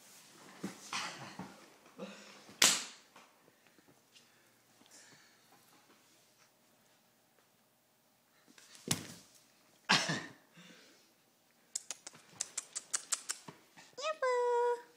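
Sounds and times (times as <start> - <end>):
puppy scuffling on tile floor: 8.5 - 9.6.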